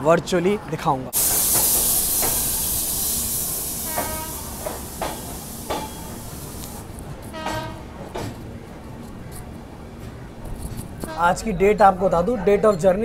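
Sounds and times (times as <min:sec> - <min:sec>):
train hissing: 0:01.1 - 0:08.4
low train rumble: 0:01.2 - 0:13.0.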